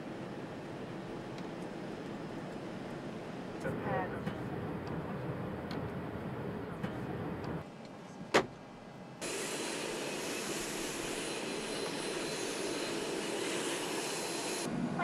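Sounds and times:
airliner cabin hum: 0:03.6 - 0:07.6.

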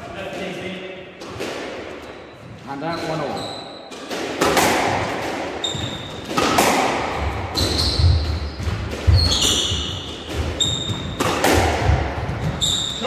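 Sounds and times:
squash ball hits echoing: 0:01.1 - 0:02.2, 0:02.9 - 0:13.0
shoes squeaking on wooden floor: 0:02.0 - 0:04.0, 0:05.6 - 0:06.3, 0:07.2 - 0:11.3, 0:12.2 - 0:13.0.

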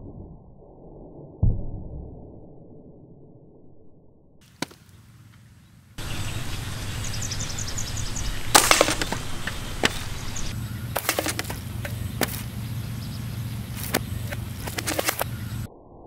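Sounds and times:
steady low rumble: 0:05.0 - 0:16.0
slingshot bands snapping: 0:08.5 - 0:10.1, 0:13.8 - 0:15.3.

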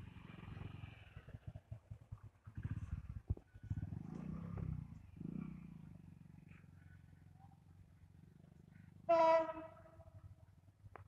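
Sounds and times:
train horn blast: 0:09.1 - 0:10.0.

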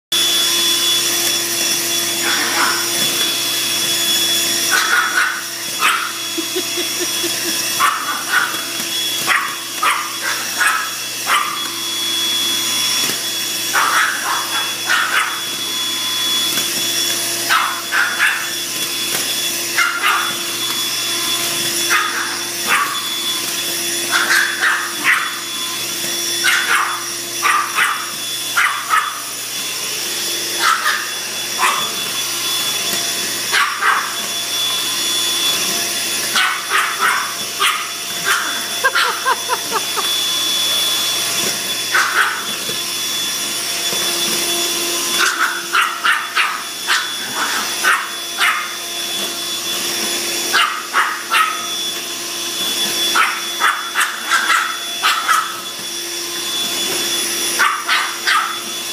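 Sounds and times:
vacuum cleaner motor whine: 0:00.1 - 0:58.9
small dog barking: 0:02.2 - 0:02.9, 0:04.7 - 0:06.2, 0:07.8 - 0:11.7, 0:13.7 - 0:15.4, 0:17.5 - 0:18.5, 0:19.8 - 0:20.4, 0:21.9 - 0:23.1, 0:24.1 - 0:25.4, 0:26.4 - 0:29.3, 0:30.6 - 0:32.0, 0:33.5 - 0:34.2, 0:36.3 - 0:39.5, 0:41.9 - 0:42.6, 0:45.2 - 0:48.8, 0:50.5 - 0:51.7, 0:53.1 - 0:55.6, 0:57.6 - 0:58.7.

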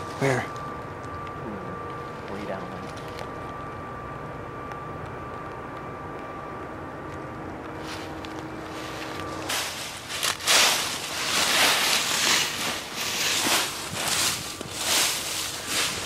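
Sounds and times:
distant engine drone: 0:00.0 - 0:16.0
footsteps crunching through dry leaves: 0:07.8 - 0:16.0.

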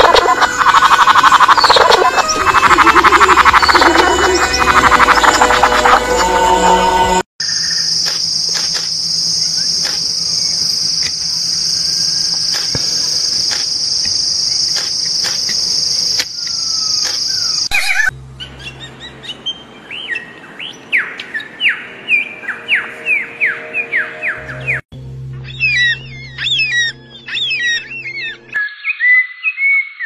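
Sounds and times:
high-pitched insect drone: 0:00.0 - 0:18.1.

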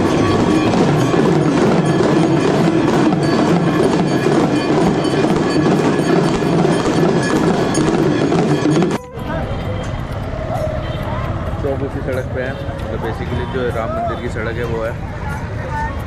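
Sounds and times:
struck percussion: 0:00.0 - 0:11.5
temple bells ringing: 0:00.0 - 0:16.0.

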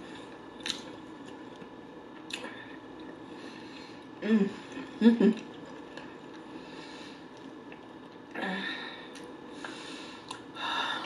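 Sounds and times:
person chewing: 0:00.1 - 0:03.4, 0:04.0 - 0:06.6, 0:07.2 - 0:08.3, 0:09.1 - 0:10.5.

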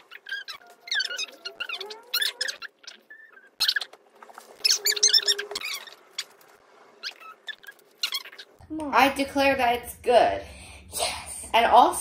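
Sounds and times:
plastic parts squeaking and rustling: 0:00.0 - 0:08.6.

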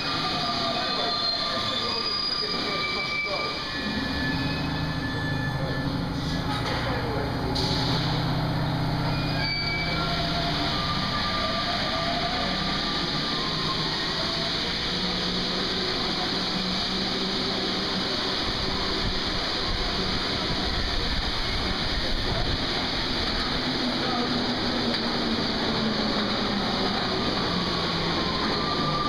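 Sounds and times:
train motor whine: 0:00.0 - 0:29.0
train rolling rumble: 0:00.0 - 0:29.0.

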